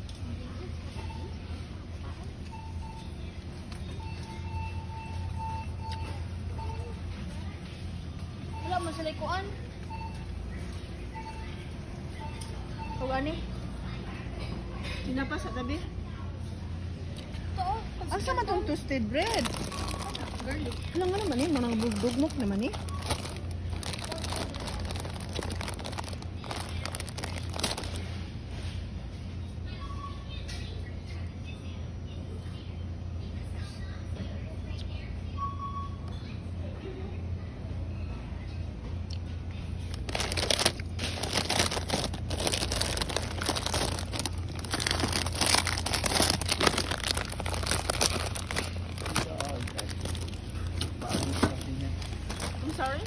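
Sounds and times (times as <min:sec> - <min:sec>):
steady low hum: 0:00.0 - 0:53.0
plastic wrappers crinkling: 0:19.0 - 0:28.2, 0:39.9 - 0:53.0
faint crackles and rustles: 0:19.2 - 0:28.9, 0:39.8 - 0:53.0.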